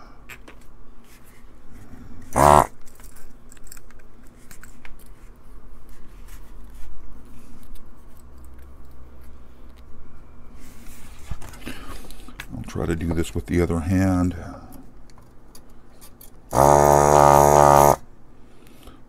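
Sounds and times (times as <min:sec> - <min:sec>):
vacuum pump buzz: 0:02.3 - 0:02.8, 0:16.5 - 0:18.1.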